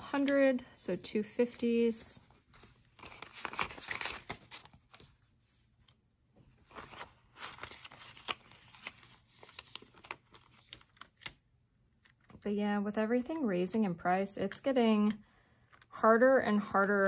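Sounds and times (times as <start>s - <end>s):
paper banknotes rustling: 1.4s - 6.0s, 6.6s - 11.4s.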